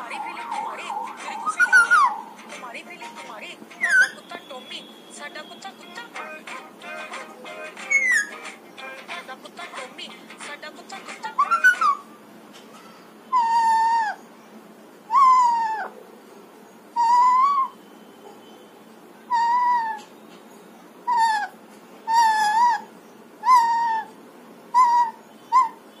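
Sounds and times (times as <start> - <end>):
parakeet calling: 0.0 - 12.2, 21.1 - 24.1, 24.8 - 25.9.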